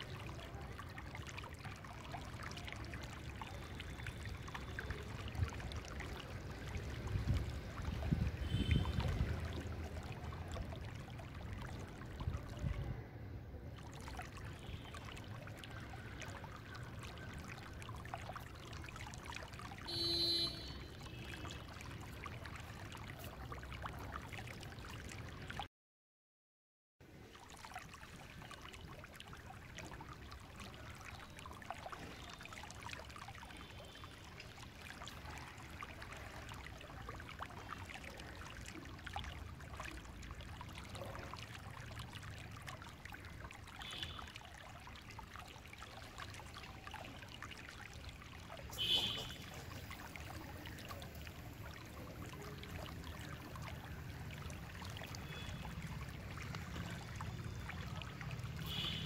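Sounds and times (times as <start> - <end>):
wind rumbling on microphone: 7.0 - 9.8.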